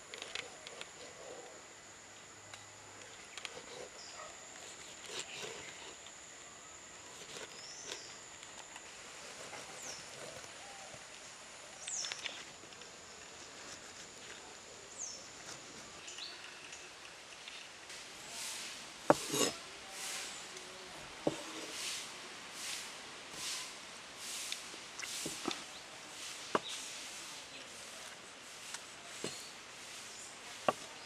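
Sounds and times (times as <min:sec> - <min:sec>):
knife scraping strokes: 0:03.4 - 0:06.0, 0:07.1 - 0:08.1, 0:18.4 - 0:20.4, 0:21.3 - 0:25.6.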